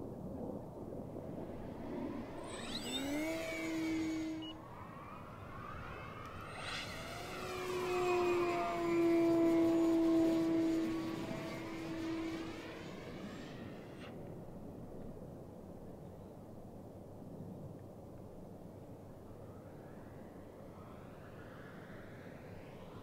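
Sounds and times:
glider whistling whoosh flying past: 1.0s - 14.2s, 19.4s - 23.0s.

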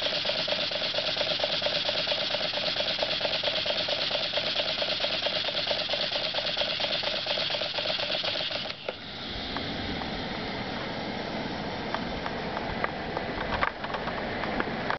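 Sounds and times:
model steam engine puffing: 0.0s - 9.0s.

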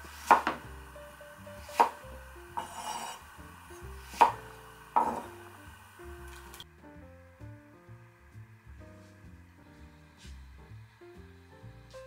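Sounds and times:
background music: 0.0s - 12.0s
knife striking cutting board: 0.2s - 0.7s, 1.7s - 2.0s, 4.1s - 4.4s, 5.0s - 5.3s
knife scraping board: 2.6s - 3.2s.

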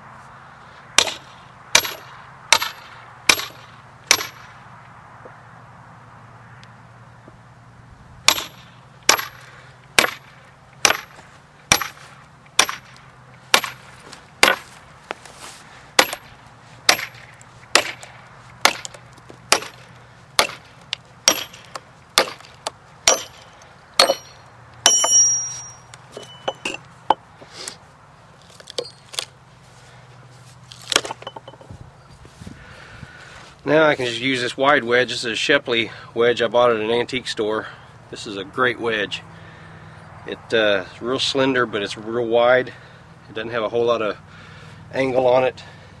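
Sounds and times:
hammer striking steel wedge: 1.0s - 4.4s, 8.3s - 12.0s, 12.6s - 13.8s, 14.4s - 14.7s, 16.0s - 27.2s
ringing metal clatter: 23.1s - 27.3s, 31.1s - 31.7s.

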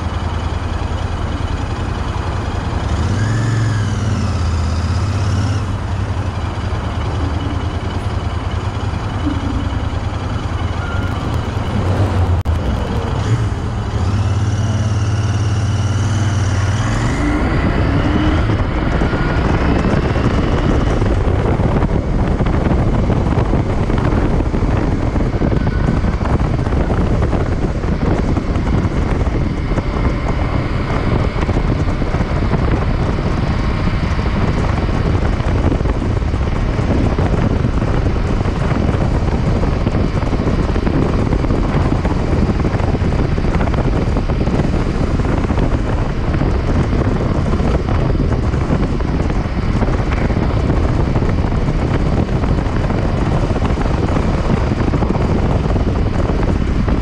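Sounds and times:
motorcycle engine idling and revving: 0.0s - 57.0s
wind noise on microphone: 0.0s - 57.0s.

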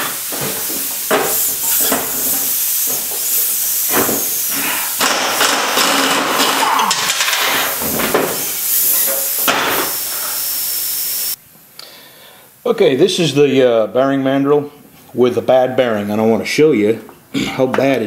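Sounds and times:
pneumatic impact wrench hammering: 0.0s - 11.4s.

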